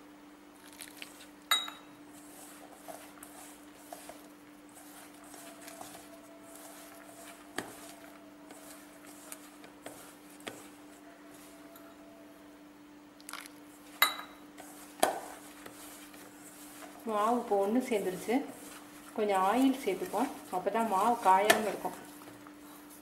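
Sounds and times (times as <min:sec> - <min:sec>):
hand mixing dough in bowl: 0:00.6 - 0:12.0, 0:13.2 - 0:23.0
clinks against steel bowl: 0:01.5 - 0:01.9, 0:14.0 - 0:14.4.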